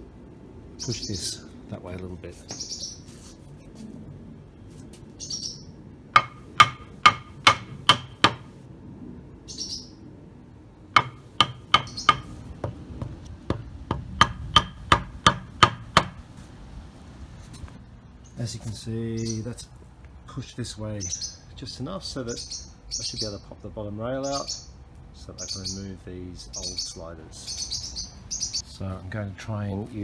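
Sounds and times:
hammer striking wood block: 6.2s - 8.5s, 11.0s - 12.8s, 13.5s - 16.2s.

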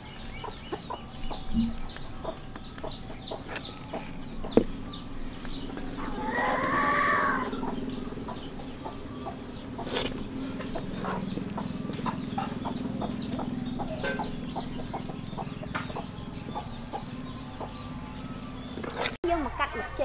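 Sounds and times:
chickens clucking: 0.0s - 20.0s
rooster crowing: 6.0s - 7.8s.

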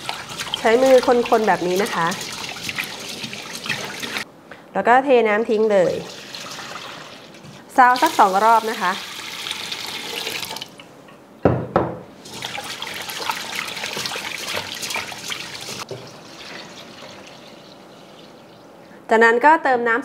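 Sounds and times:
rinse water pouring into a bowl: 0.0s - 4.2s, 5.9s - 10.7s, 12.2s - 18.6s
water pouring into a pot: 0.0s - 4.2s, 5.9s - 7.3s, 7.9s - 10.7s, 12.2s - 18.6s.

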